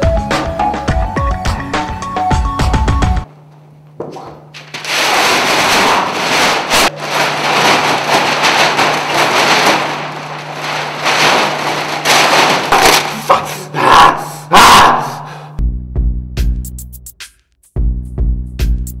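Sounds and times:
paper poster crumpling: 0:04.5 - 0:13.7
paper tearing: 0:04.6 - 0:13.7.

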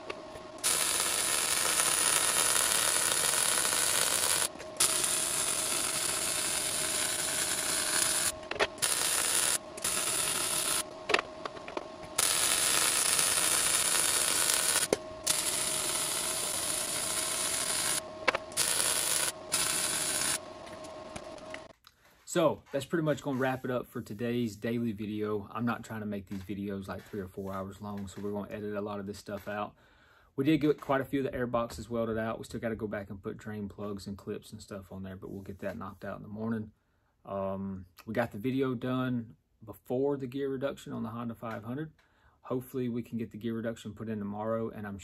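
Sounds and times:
welding arc hissing: 0:00.0 - 0:21.7.

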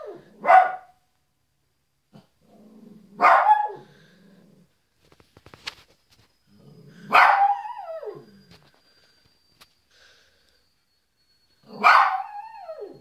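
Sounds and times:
small dog barking: 0:00.0 - 0:01.0, 0:03.2 - 0:03.9, 0:07.1 - 0:08.2, 0:11.7 - 0:12.4
dog growling: 0:02.2 - 0:04.8, 0:06.5 - 0:07.2.

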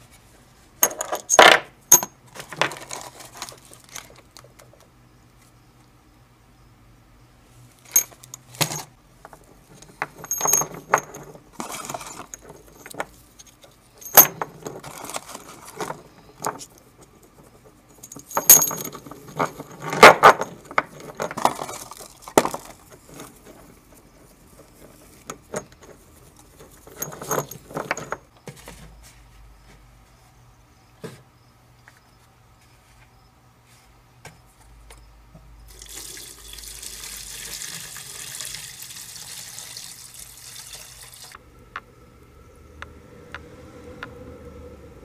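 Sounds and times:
metal washers clinking: 0:00.8 - 0:04.4, 0:07.8 - 0:23.8, 0:24.6 - 0:28.3.

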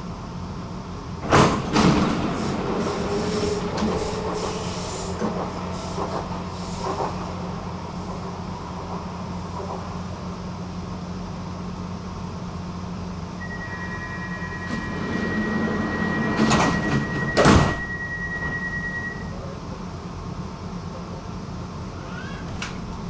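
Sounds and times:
sliding doors knocking shut: 0:01.2 - 0:07.2, 0:16.0 - 0:17.9
high warning tone: 0:13.4 - 0:19.4.

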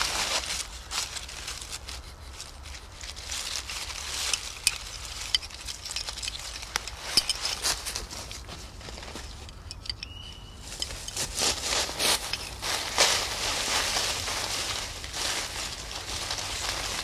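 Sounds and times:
dry leaves rustling and crackling: 0:00.0 - 0:17.0.

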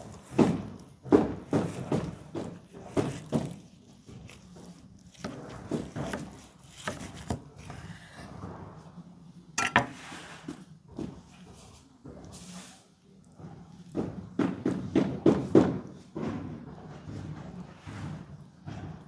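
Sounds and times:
knife scrape: 0:09.6 - 0:10.6.

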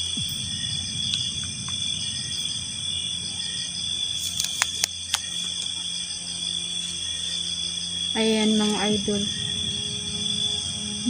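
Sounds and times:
crickets trilling: 0:00.0 - 0:11.0
fast pulsing trill: 0:00.0 - 0:11.0
sharp clicks: 0:04.2 - 0:05.7.

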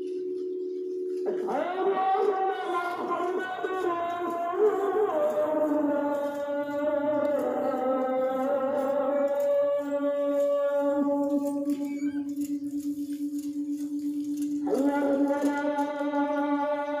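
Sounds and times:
person chanting long notes: 0:00.0 - 0:17.0.

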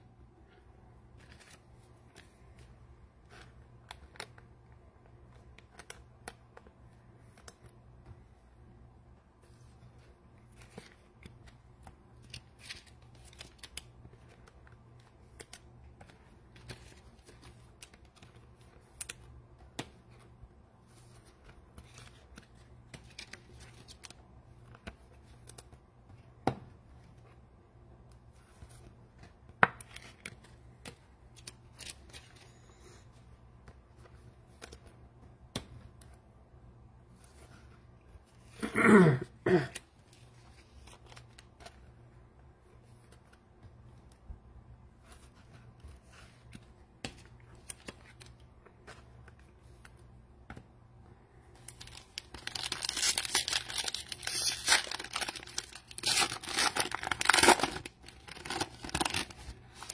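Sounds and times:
cards and wrappers rustling: 0:01.1 - 0:08.3, 0:09.4 - 0:27.4, 0:28.2 - 0:36.2, 0:39.7 - 0:42.0, 0:44.9 - 0:50.7, 0:51.4 - 0:59.9.

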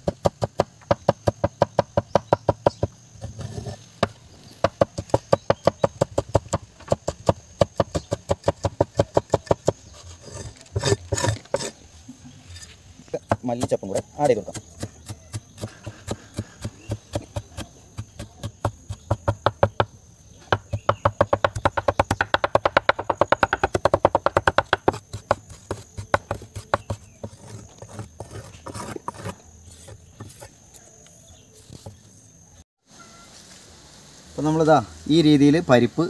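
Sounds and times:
knife chopping on wooden board: 0:13.2 - 0:19.9, 0:20.5 - 0:29.3.

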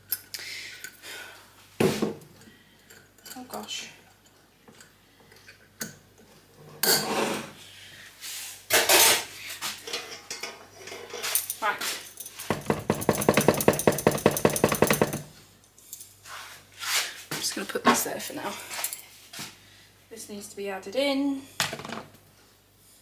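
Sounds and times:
utensils knocking plastic bowl: 0:12.5 - 0:15.3.

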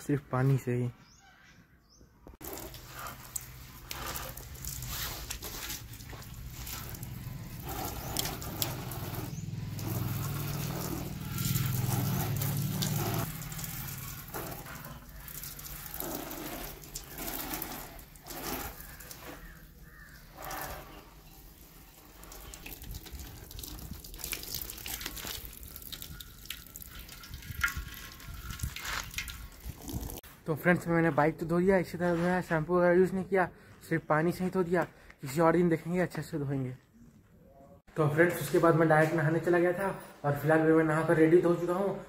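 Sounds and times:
hose water splashing on motorcycle: 0:02.4 - 0:30.3.

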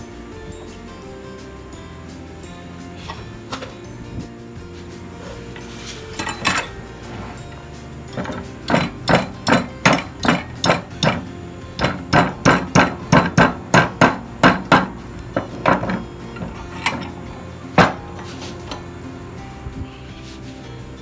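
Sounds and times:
hammer striking: 0:05.4 - 0:18.9.

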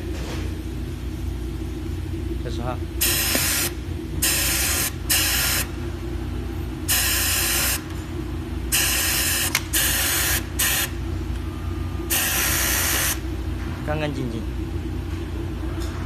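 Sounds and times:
low machine hum: 0:00.0 - 0:16.0
compressed air hissing bursts: 0:03.0 - 0:05.7, 0:08.7 - 0:10.9, 0:12.1 - 0:13.2.

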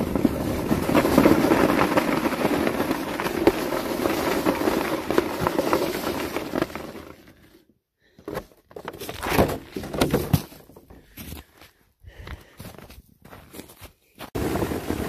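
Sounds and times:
footsteps crunching on icy snow: 0:11.1 - 0:14.4.

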